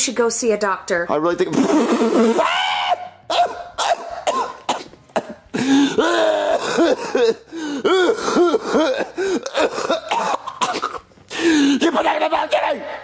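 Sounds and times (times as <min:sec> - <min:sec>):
person coughing and gagging: 0:03.3 - 0:11.1.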